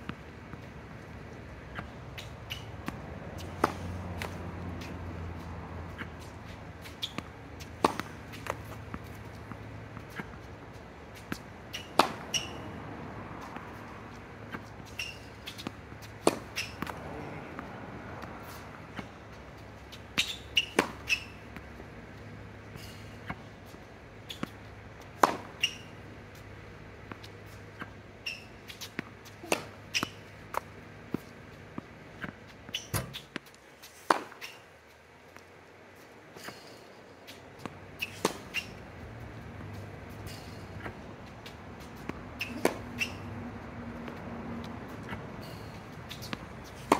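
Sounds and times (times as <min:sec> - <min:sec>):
tennis ball hits and bounces: 0:00.0 - 0:12.8, 0:13.4 - 0:22.0, 0:24.3 - 0:34.7, 0:36.4 - 0:46.9
shoes squeaking on court: 0:00.0 - 0:46.9
short high squeaks: 0:06.8 - 0:07.3, 0:11.7 - 0:12.7, 0:14.8 - 0:15.6, 0:16.5 - 0:16.8, 0:20.2 - 0:21.4, 0:25.6 - 0:26.0, 0:28.2 - 0:28.9, 0:29.6 - 0:30.3, 0:32.7 - 0:33.3, 0:38.0 - 0:38.8, 0:42.4 - 0:43.3.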